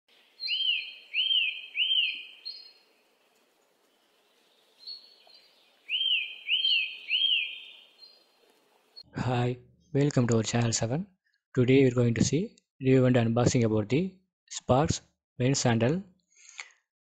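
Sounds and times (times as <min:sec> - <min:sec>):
high bird-like chirps: 0:00.2 - 0:02.9, 0:04.8 - 0:08.3.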